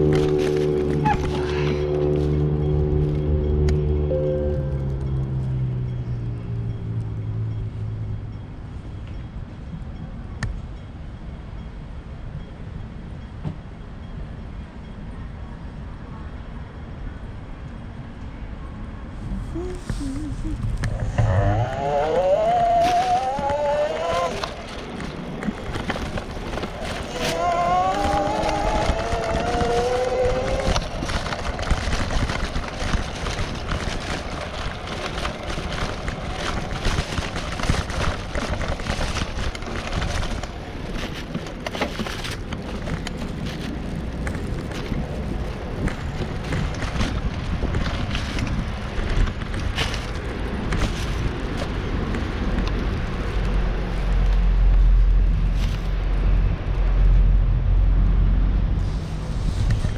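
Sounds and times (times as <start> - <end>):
street noise: 0.0 - 59.9
wind rumbling on microphone: 0.0 - 59.9.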